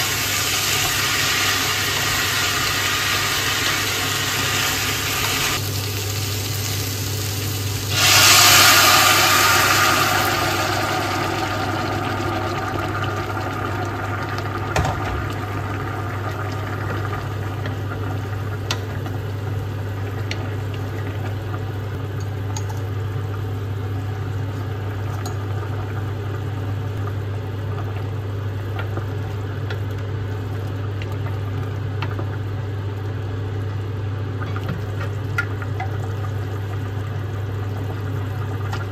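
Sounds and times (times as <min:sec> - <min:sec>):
loud hiss: 0:07.8 - 0:10.6.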